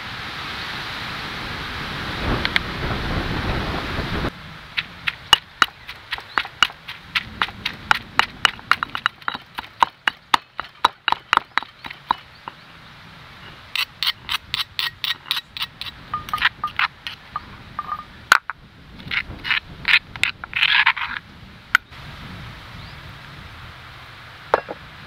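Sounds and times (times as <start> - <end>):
steady rushing noise: 0.0 - 25.0
stone pestle pounding in mortar: 4.8 - 12.6, 13.8 - 17.2.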